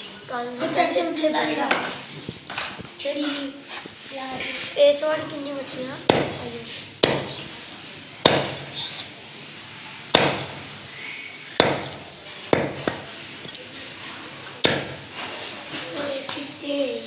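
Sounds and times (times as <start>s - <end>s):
cleaver chopping on wooden block: 6.1s - 6.4s, 7.0s - 7.4s, 8.2s - 8.7s, 10.1s - 10.6s, 11.6s - 13.0s, 14.6s - 15.0s.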